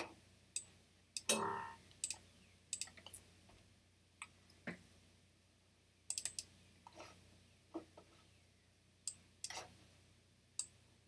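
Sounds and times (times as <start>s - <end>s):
computer mouse clicks: 1.9s - 3.2s, 6.1s - 7.0s, 9.0s - 9.7s, 10.6s - 10.8s.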